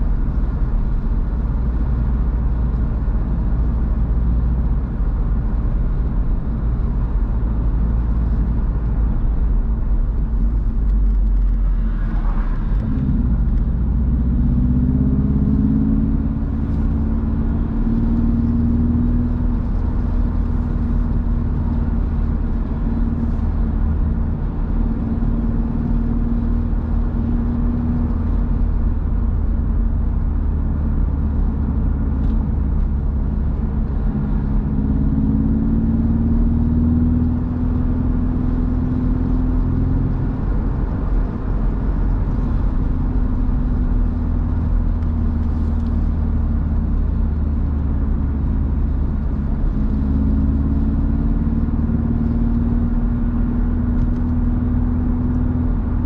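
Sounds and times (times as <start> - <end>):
car engine drone: 0.0 - 56.0
road and wind rumble: 0.0 - 56.0.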